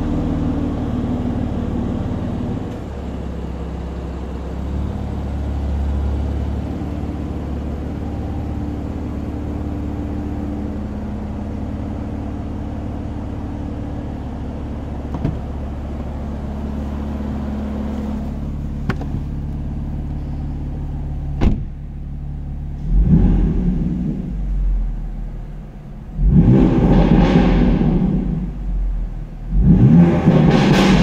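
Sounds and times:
car engine idling and revving: 0.0s - 31.0s
car door shutting: 15.1s - 16.1s, 18.8s - 19.6s, 21.4s - 21.8s.

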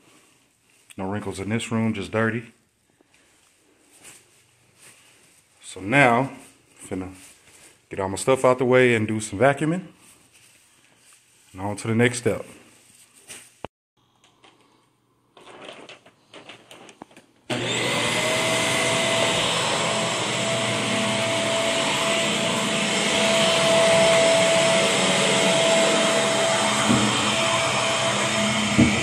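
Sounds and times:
faint rustles: 10.0s - 11.6s, 12.6s - 13.6s
stick vacuum cleaner running: 17.5s - 29.0s.

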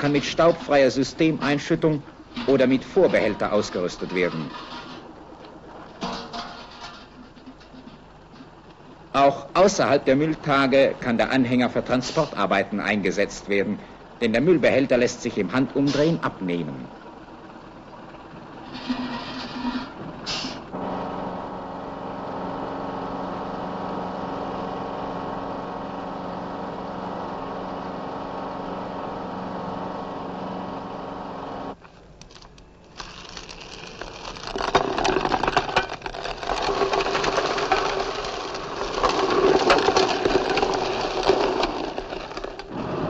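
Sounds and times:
rubble sliding out of trailer: 0.0s - 13.9s, 14.6s - 16.8s, 18.3s - 21.4s, 32.9s - 43.0s
truck engine running: 5.0s - 31.9s.

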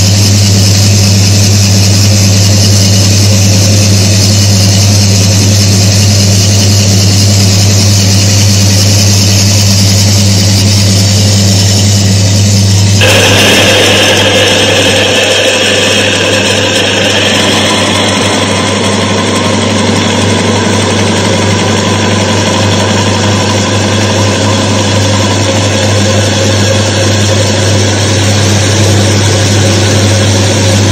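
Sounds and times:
high-pitched metal grinding: 2.0s - 26.9s
electric motor humming: 5.4s - 25.1s.

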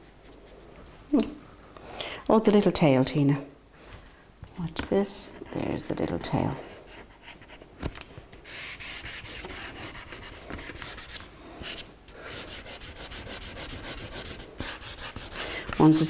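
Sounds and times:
crayon scratching on paper: 8.4s - 16.0s.

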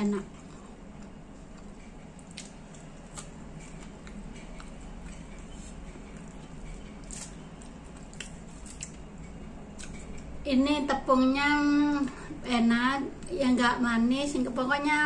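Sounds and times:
person chewing crispy food: 0.2s - 10.4s.

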